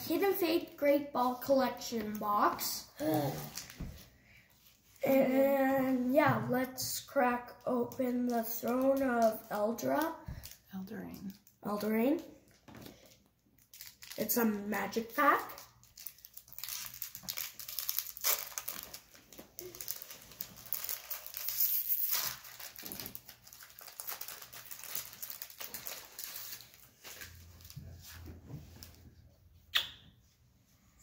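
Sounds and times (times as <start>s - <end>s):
foil wrapper crinkling: 13.0s - 14.6s, 15.4s - 27.8s.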